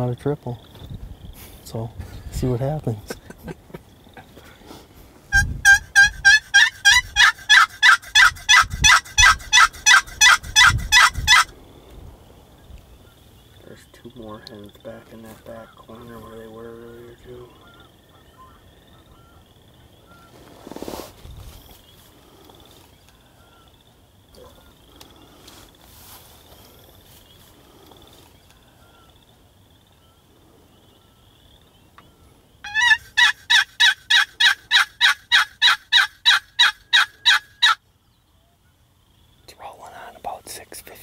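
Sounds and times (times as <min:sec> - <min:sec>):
turkey yelps: 0:05.3 - 0:11.5, 0:32.6 - 0:37.8.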